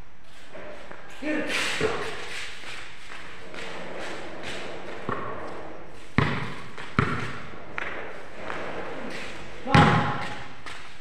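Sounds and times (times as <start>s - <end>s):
basketball bouncing on concrete: 1.8s - 2.2s, 5.0s - 5.3s, 6.1s - 8.0s, 9.6s - 10.8s.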